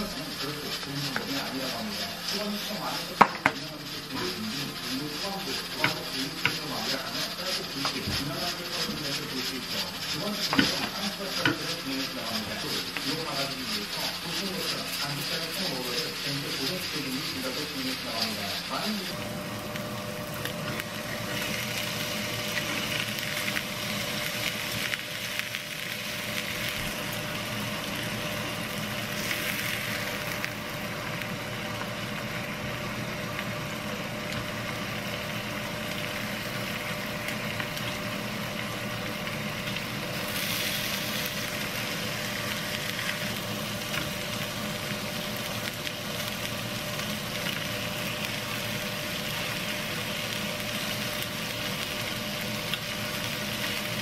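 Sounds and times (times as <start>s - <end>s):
steak sizzling in a pan: 0.0s - 54.0s.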